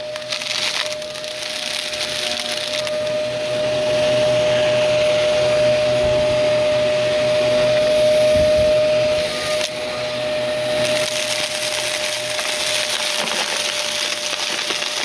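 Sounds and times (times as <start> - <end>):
debris crackling: 0.0 - 3.2, 10.7 - 15.0
vacuum cleaner motor whine: 0.0 - 15.0.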